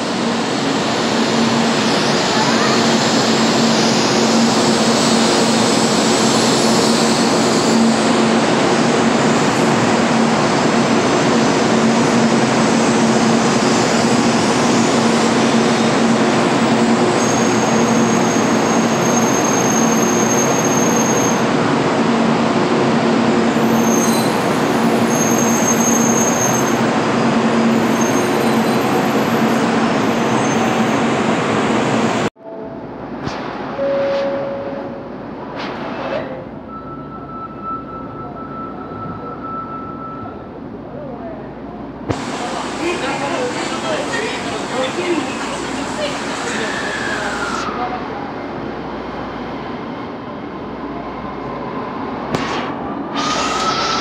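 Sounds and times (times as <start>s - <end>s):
thin high whine: 33.7s - 36.1s.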